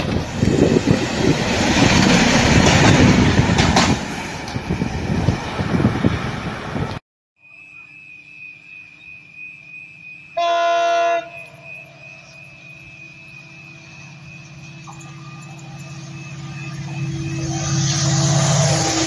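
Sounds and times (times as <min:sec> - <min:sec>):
diesel locomotive engine throbbing: 0:00.0 - 0:07.0, 0:08.9 - 0:19.0
wheel and rail noise: 0:00.0 - 0:10.4, 0:11.2 - 0:19.0
locomotive horn blast: 0:10.4 - 0:12.1.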